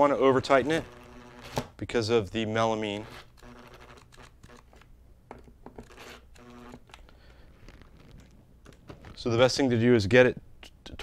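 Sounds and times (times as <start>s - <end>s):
power screwdriver whirring: 5.8s - 7.0s.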